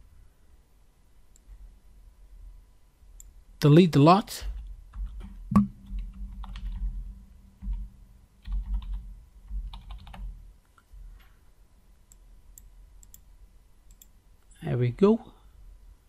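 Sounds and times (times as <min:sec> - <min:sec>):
typing on computer keyboard: 0:05.8 - 0:07.0, 0:08.4 - 0:10.4.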